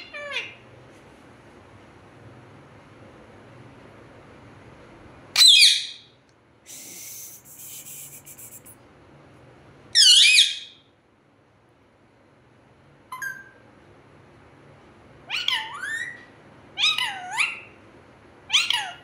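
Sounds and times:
parakeet shrill calls: 5.4 - 6.0, 10.0 - 10.8, 15.3 - 16.2, 16.8 - 17.8, 18.5 - 19.0
rasping hissing noise: 6.7 - 8.8.

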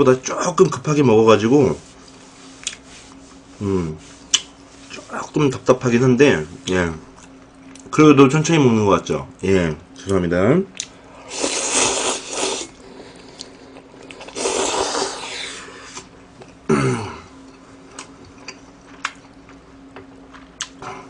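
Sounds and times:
person slurping noodles: 11.2 - 16.1
chewing with mouth clicks: 13.0 - 14.5.

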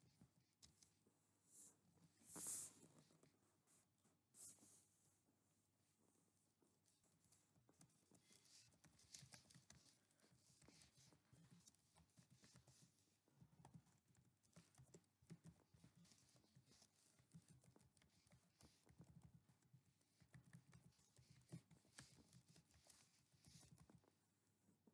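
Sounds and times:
keyboard typing: 13.5 - 24.0.

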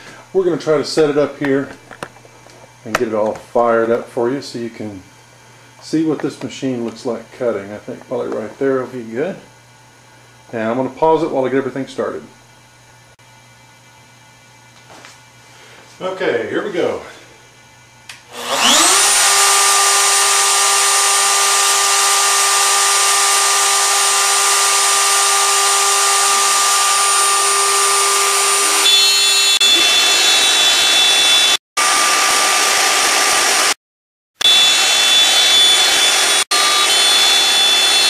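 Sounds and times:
wood router whining: 18.2 - 33.8, 34.4 - 38.0.

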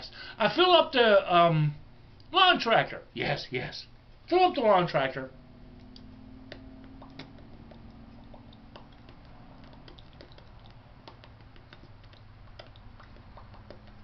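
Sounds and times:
low hum: 0.0 - 3.2, 3.8 - 14.0.

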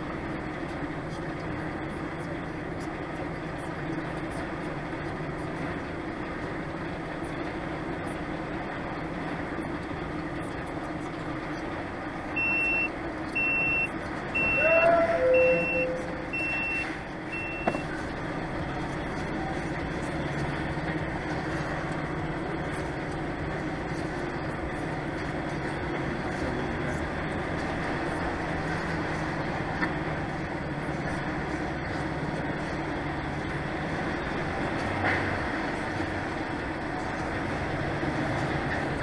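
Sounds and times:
truck engine drone: 0.0 - 39.0
short high electronic beeps: 12.4 - 17.8
brief louder tone: 14.4 - 17.8.

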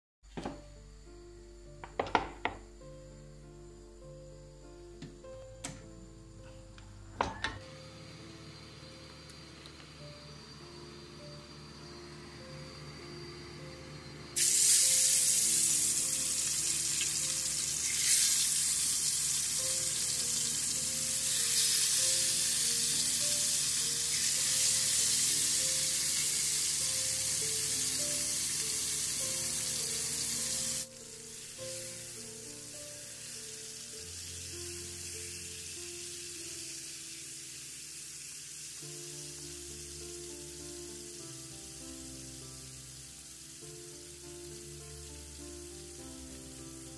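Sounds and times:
background music: 0.3 - 37.8, 38.7 - 46.9
fish sizzling in hot oil: 14.4 - 46.9.

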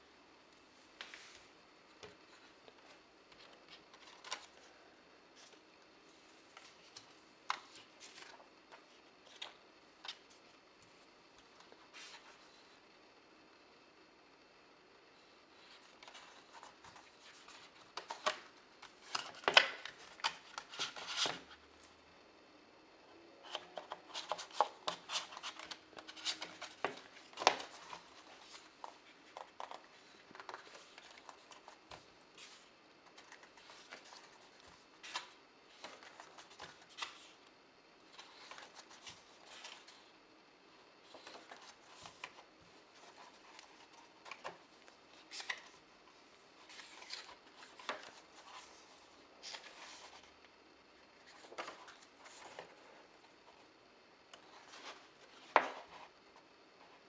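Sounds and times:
glossy paper pages turning: 41.0 - 45.8, 46.6 - 50.3.

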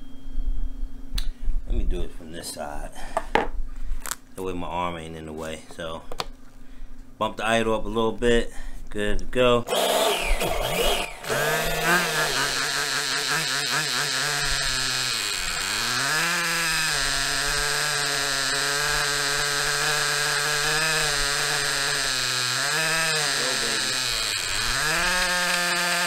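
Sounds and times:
model engine idling: 11.2 - 16.3.

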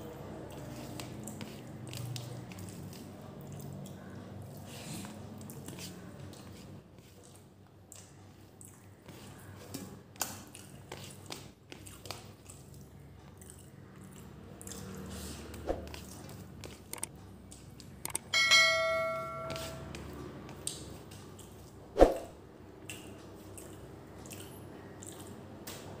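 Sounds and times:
chewing: 0.1 - 18.2, 22.8 - 25.9
bell-like ding sound effect: 18.3 - 19.9.

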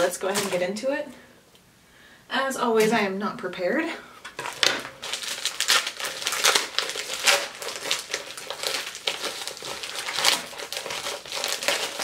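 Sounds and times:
plastic bag crinkling: 0.0 - 0.8, 4.2 - 12.0.

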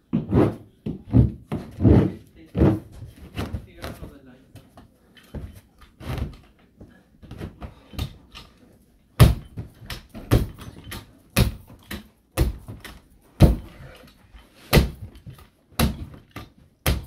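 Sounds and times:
rubber mallet thudding on carpet: 9.2 - 13.7.

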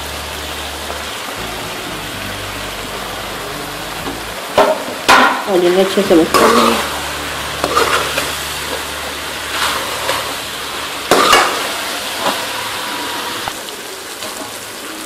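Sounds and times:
vegetables sizzling in pan: 0.0 - 15.0
steel spoon scraping pan: 6.2 - 10.4.

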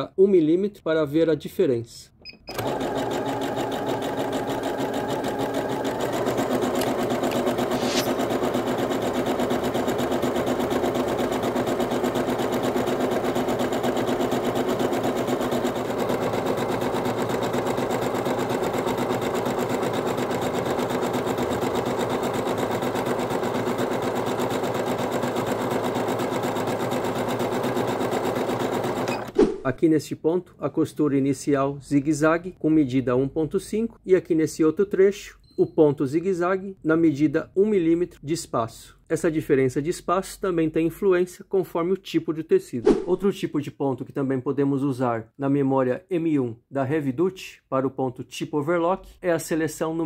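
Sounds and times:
sewing machine running: 2.5 - 29.4.

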